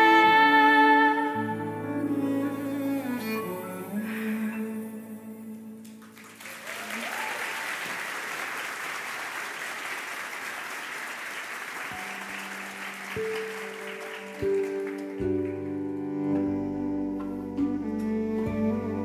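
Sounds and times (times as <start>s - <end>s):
audience applauding: 5.8s - 16.1s
plucked instrument notes: 13.2s - 19.0s
low cello note: 15.2s - 19.0s.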